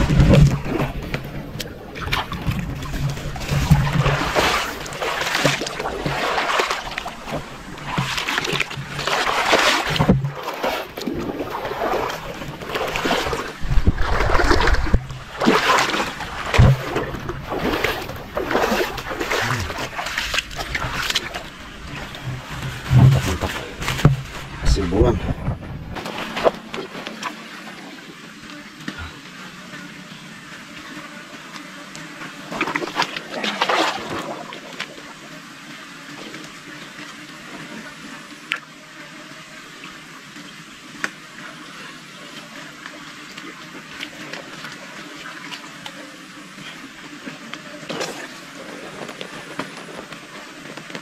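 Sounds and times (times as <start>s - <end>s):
wet mud squelching and sloshing: 0.0s - 27.2s, 32.6s - 34.5s.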